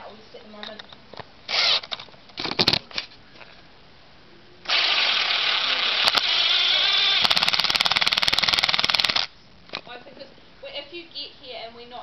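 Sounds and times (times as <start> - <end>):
impact driver driving screw into wood: 1.5 - 2.8, 4.7 - 9.3.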